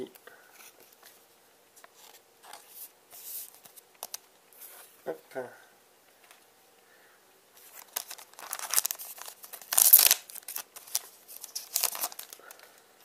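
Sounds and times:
foil pack crinkling: 7.6s - 12.8s
foil tearing: 7.7s - 12.6s.

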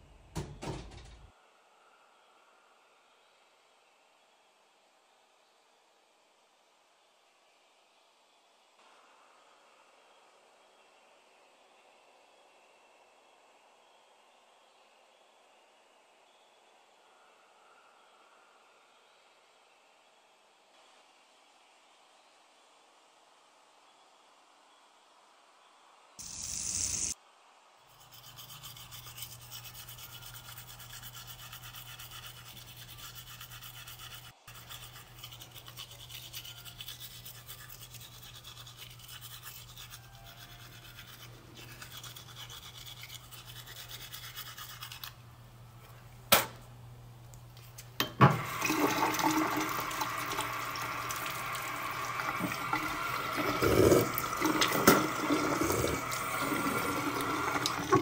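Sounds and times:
toothbrush scrubbing teeth: 27.9s - 45.2s, 50.0s - 58.0s
tap water running into sink: 48.2s - 58.0s.

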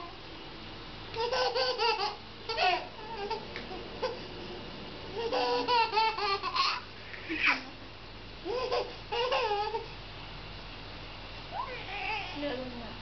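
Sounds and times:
toddler laughing and babbling: 1.2s - 4.3s, 5.1s - 7.7s, 8.4s - 10.0s, 11.5s - 12.4s
toddler squealing: 11.5s - 12.4s.

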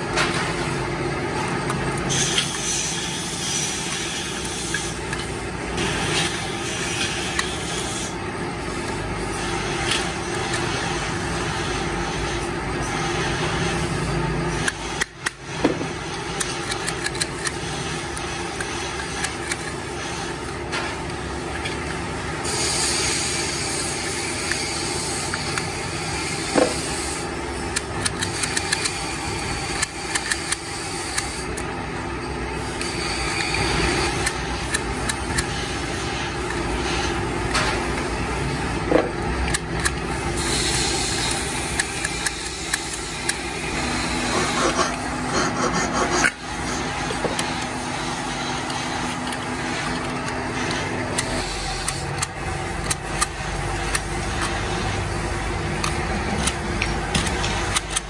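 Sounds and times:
metallic clicks and scrapes: 1.4s - 31.8s, 32.6s - 38.1s, 38.9s - 58.0s
motor-like drone: 21.5s - 58.0s.

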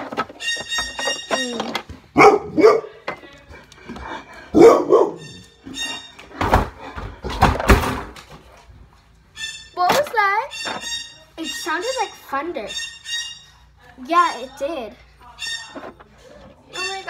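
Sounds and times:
dog barking and yelping: 2.1s - 3.0s, 4.5s - 5.4s.

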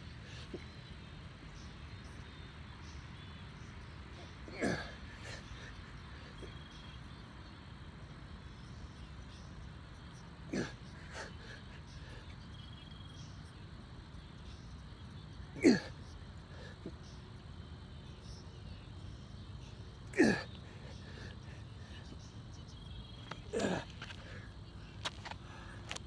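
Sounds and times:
man grunting exhalations: 4.5s - 5.7s, 10.5s - 12.2s, 15.6s - 15.9s, 20.1s - 21.9s, 23.5s - 24.5s.

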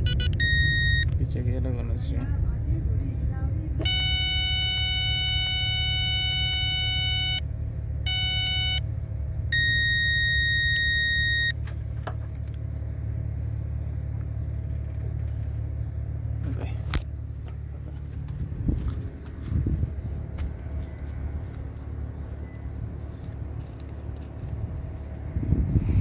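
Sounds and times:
electronic beep tones: 0.0s - 1.1s, 3.8s - 7.4s, 8.1s - 8.8s, 9.5s - 11.6s.

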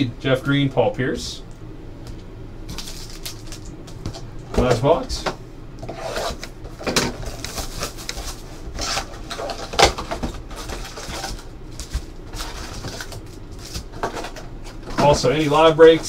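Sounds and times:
packaging rustling and crinkling: 2.7s - 4.2s, 7.1s - 16.0s.

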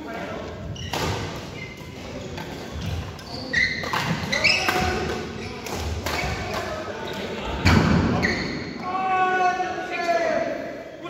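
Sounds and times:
shoes squeaking on court: 0.6s - 6.6s, 8.2s - 8.7s
racket hitting shuttlecock: 3.7s - 6.6s.

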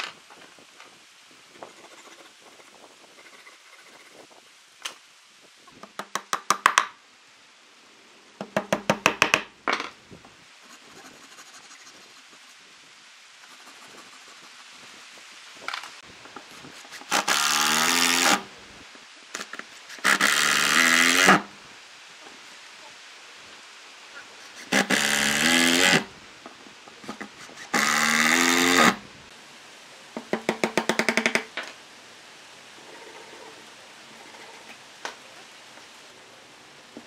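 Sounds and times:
hand saw sawing wood: 16.6s - 18.5s, 19.8s - 21.5s, 24.4s - 26.1s, 26.9s - 29.0s.

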